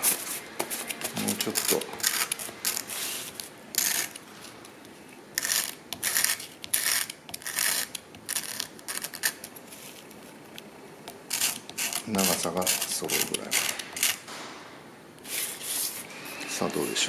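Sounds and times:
wooden fork scraping sandpaper: 0.0s - 4.1s, 5.4s - 10.0s, 11.3s - 14.2s.

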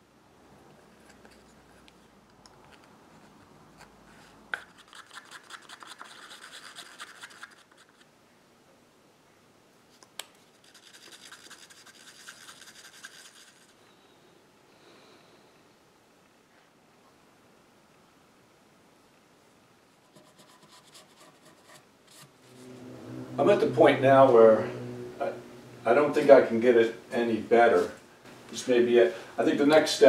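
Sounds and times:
stick scraping paper cup: 3.1s - 8.0s.

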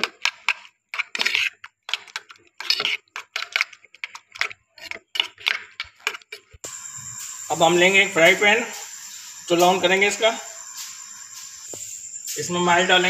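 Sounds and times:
utensil beating eggs in steel bowl: 6.6s - 13.0s.

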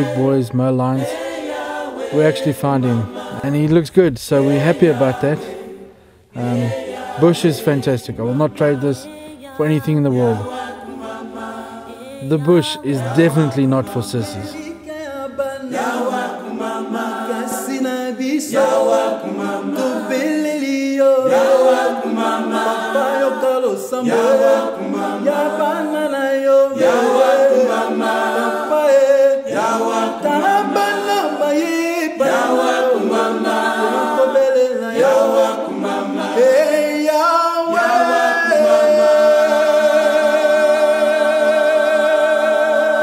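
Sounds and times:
choir singing unaccompanied: 0.0s - 43.0s.

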